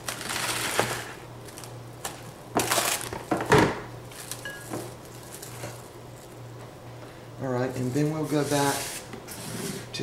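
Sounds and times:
plastic wrap rustling and crackling: 0.0 - 6.4.

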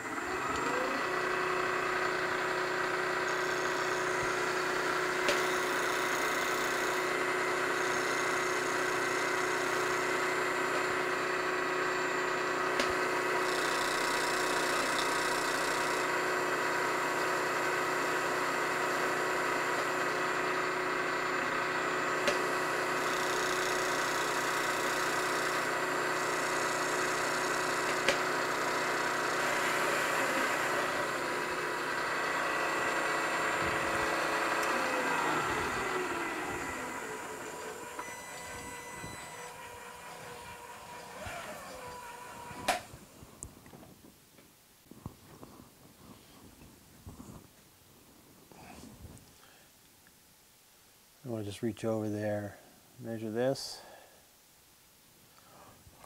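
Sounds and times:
end mill cutting metal: 0.0 - 43.0
milling machine spindle whine: 0.0 - 43.2.

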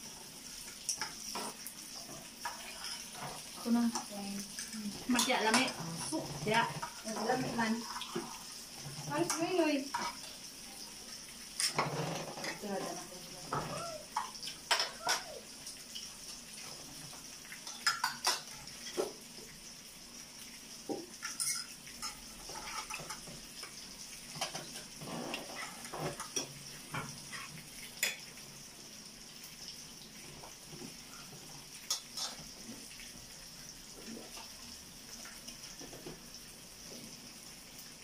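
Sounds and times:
cutlery and plates clinking: 9.2 - 10.3, 11.6 - 15.4, 17.6 - 19.2, 21.2 - 23.3, 24.3 - 28.3.

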